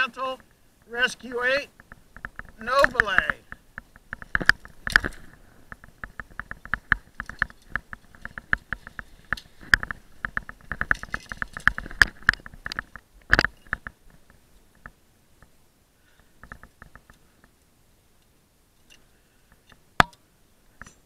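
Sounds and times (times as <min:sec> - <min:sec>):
rappel hardware clicking: 0:01.7 - 0:14.0.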